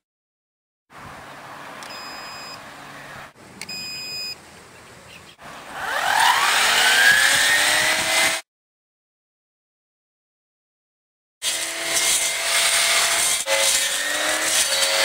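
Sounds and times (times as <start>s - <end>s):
short electronic beeps: 1.9s - 2.6s, 3.7s - 4.4s
brush cutter motor whine: 5.6s - 8.4s, 11.4s - 15.0s.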